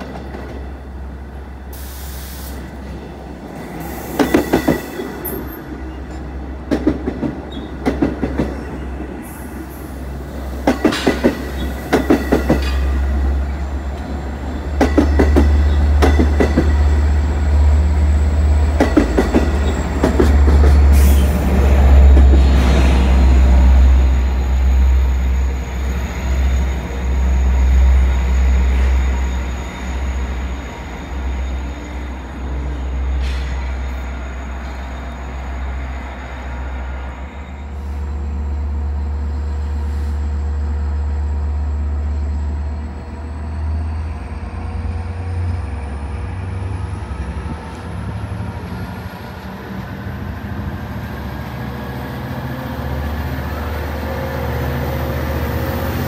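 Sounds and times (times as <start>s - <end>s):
diesel locomotive rumbling: 0.0s - 56.0s
train rail noise: 0.0s - 56.0s.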